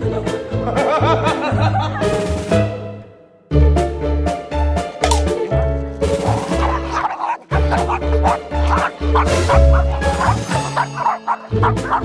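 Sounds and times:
small dog barking: 6.2 - 12.0.

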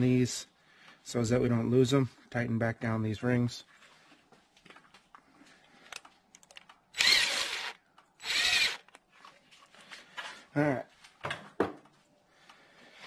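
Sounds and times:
cordless drill tightening clamp: 5.9 - 9.0.

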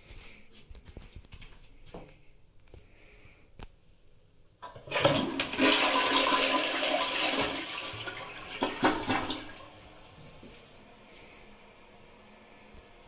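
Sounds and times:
toilet flushing: 4.6 - 13.0.

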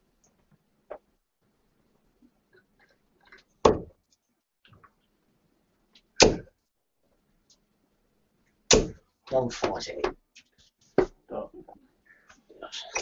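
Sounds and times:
darts thudding into dartboard: 3.6 - 4.0, 6.2 - 6.5, 8.7 - 9.0.

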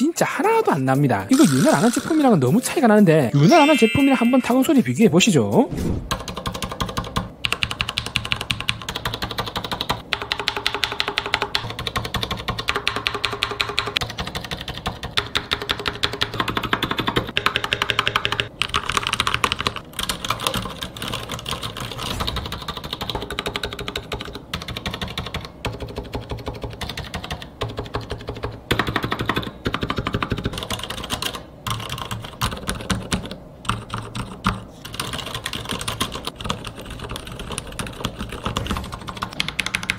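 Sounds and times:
ringing spring ding: 3.4 - 5.0
mechanical keyboard typing: 6.1 - 39.9.

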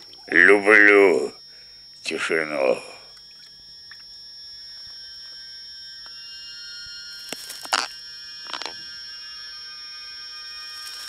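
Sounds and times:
short noisy calls: 6.2 - 11.0.

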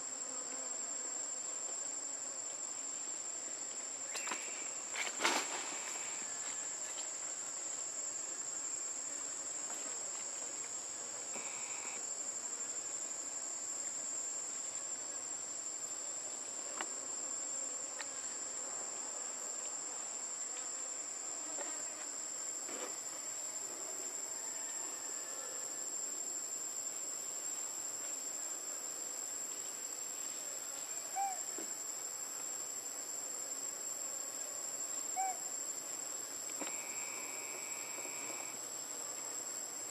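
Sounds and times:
insect chorus trilling: 10.7 - 13.1, 22.9 - 26.5, 30.8 - 32.0, 34.9 - 39.9.

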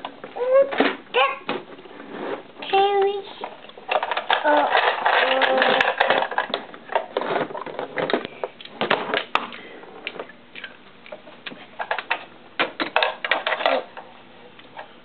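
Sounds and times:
plastic toy tools clattering: 3.4 - 8.3, 11.8 - 13.9.

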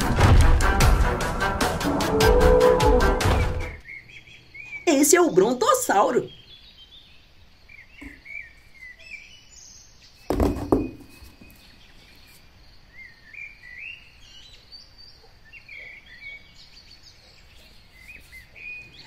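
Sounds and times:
small birds chirping: 3.7 - 19.0
plastic toys knocking in box: 10.3 - 11.1.

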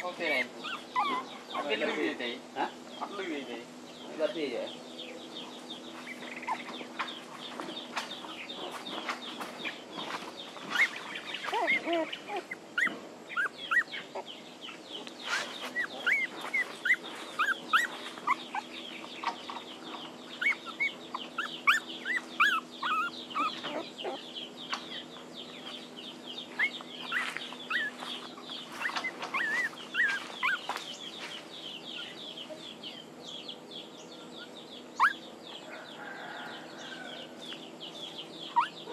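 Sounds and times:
puppies whimpering and squealing: 0.0 - 2.2, 5.4 - 24.8, 26.2 - 32.7, 34.3 - 35.6, 38.3 - 38.9
steady low hum: 0.0 - 38.9.

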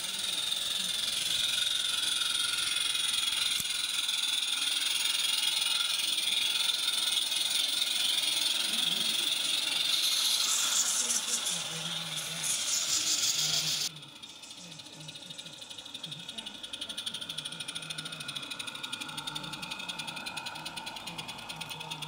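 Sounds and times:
steam locomotive hiss: 4.6 - 13.9.

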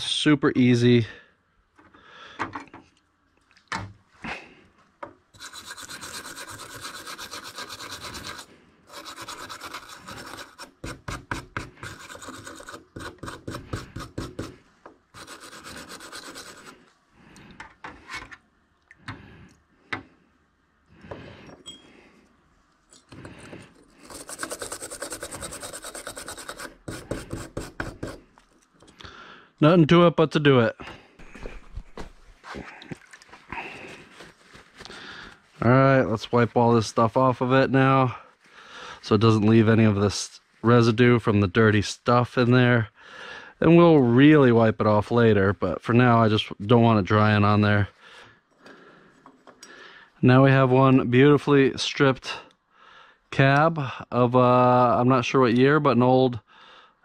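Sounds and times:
wire brush scrubbing: 5.4 - 16.8, 23.8 - 28.4.

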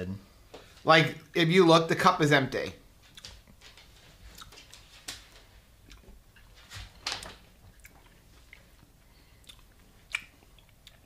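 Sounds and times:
mouth smacks and clicks eating: 4.3 - 4.8, 5.8 - 6.5, 7.6 - 11.0.

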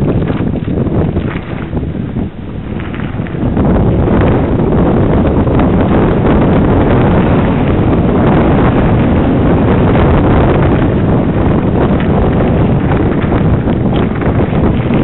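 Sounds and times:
wind buffeting microphone: 0.0 - 15.0
bike clicks and knocks on stones: 11.8 - 15.0.

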